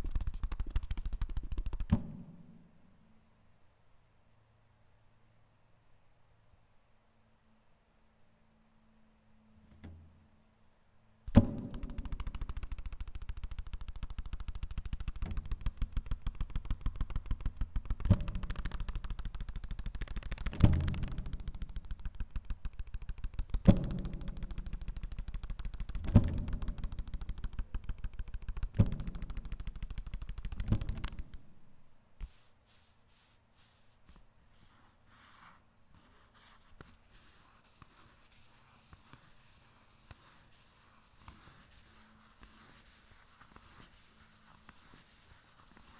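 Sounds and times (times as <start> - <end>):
paper percussion rattling roll: 11.3 - 31.4.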